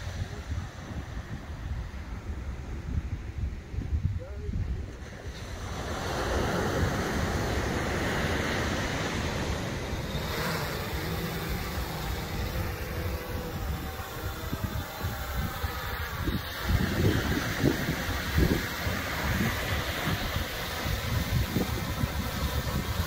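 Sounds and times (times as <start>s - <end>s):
wind on microphone: 0.0s - 23.0s
drone propellers humming: 5.6s - 23.0s.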